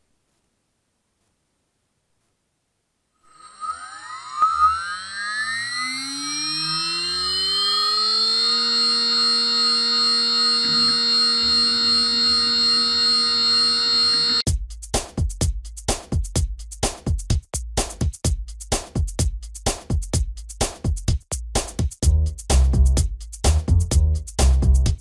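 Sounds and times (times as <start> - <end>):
faint low rough noise: 0.0 - 3.2
spindle whine rising: 3.2 - 14.4.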